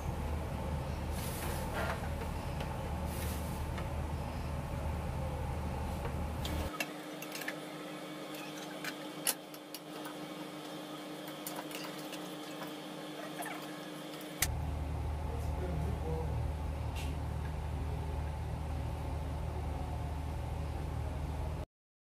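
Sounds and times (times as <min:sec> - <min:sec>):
low rumble: 0:00.0 - 0:06.7, 0:14.5 - 0:21.6.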